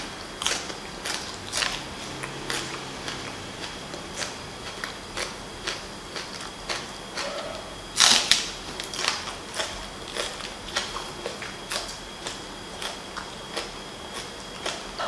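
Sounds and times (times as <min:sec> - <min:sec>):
crunchy chewing: 0:00.0 - 0:15.0.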